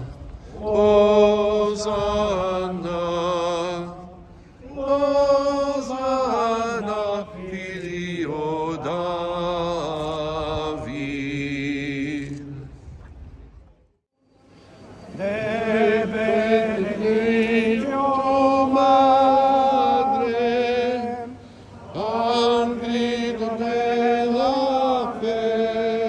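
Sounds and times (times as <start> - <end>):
men chanting in unison: 0.0 - 12.3.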